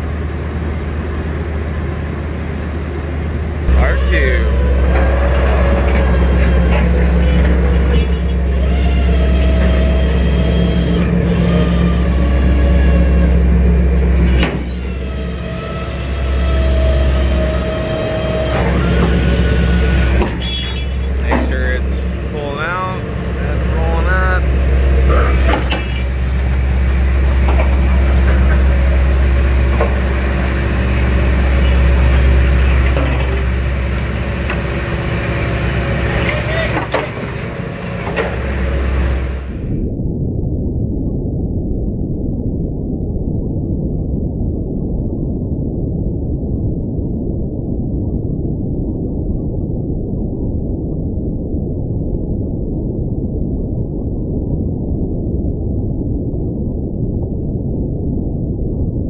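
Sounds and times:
boat engine humming: 0:00.0 - 0:39.9.

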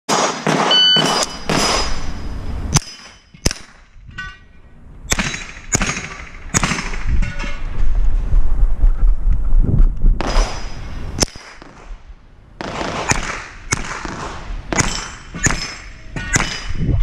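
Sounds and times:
rifle shots: 0:00.1 - 0:03.8, 0:05.1 - 0:07.1, 0:12.6 - 0:16.7
steel targets ringing: 0:00.1 - 0:07.7, 0:14.8 - 0:16.9.

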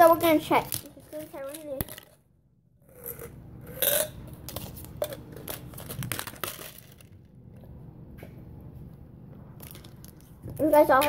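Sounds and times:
plastic packaging crinkling: 0:04.6 - 0:07.1.

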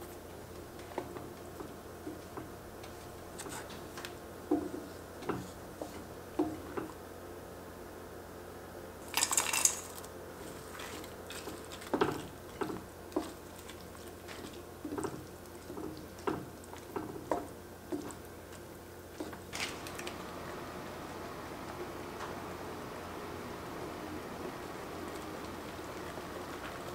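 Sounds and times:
wooden spatula scraping pot: 0:00.8 - 0:04.0, 0:04.6 - 0:07.0, 0:10.4 - 0:19.5
metal bowl clatter: 0:09.1 - 0:10.0.

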